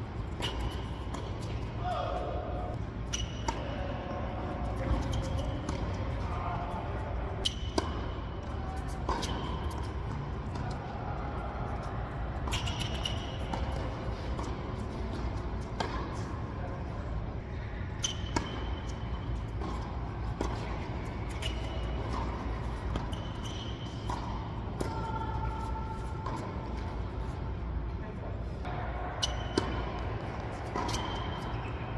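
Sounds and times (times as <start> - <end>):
steady low hum: 0.0 - 31.9
tennis balls struck and bouncing: 0.3 - 2.4, 3.1 - 3.8, 4.7 - 6.5, 7.1 - 11.0, 11.7 - 16.9, 18.0 - 27.3, 28.6 - 31.8
shoe squeaks: 3.0 - 3.8, 4.8 - 5.8, 12.5 - 14.1, 18.0 - 19.6, 20.5 - 24.3, 29.2 - 31.9.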